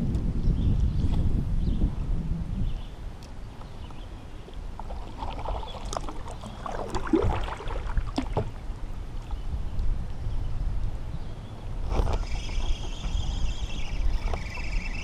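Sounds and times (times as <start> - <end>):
water splashing around kayak: 3.8 - 9.8.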